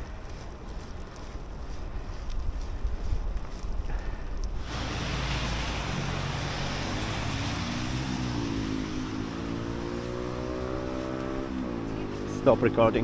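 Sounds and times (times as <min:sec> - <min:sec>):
rushing noise: 0:04.6 - 0:12.4
engine revving up: 0:04.6 - 0:13.0
engine running: 0:04.6 - 0:13.0.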